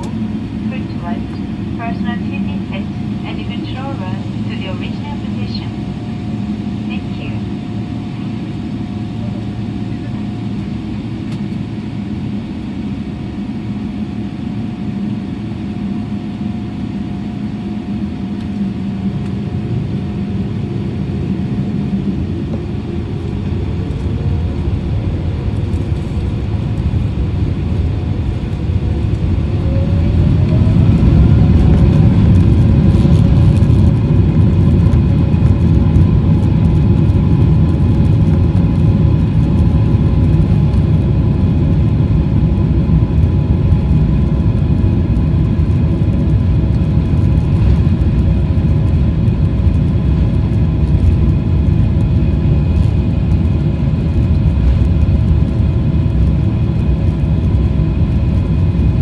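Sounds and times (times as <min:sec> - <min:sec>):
wheels rumbling on runway: 0:17.4 - 0:59.0.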